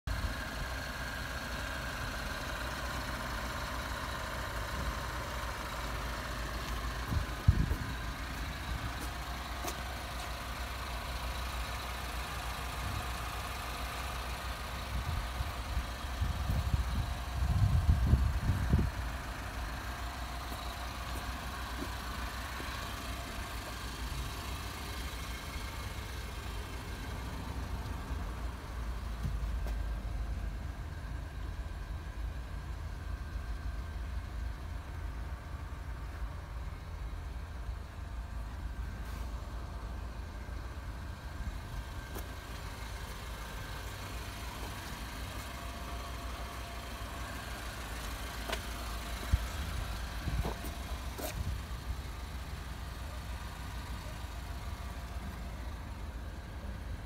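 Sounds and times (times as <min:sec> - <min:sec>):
car engine idling: 0:00.0 - 0:57.0.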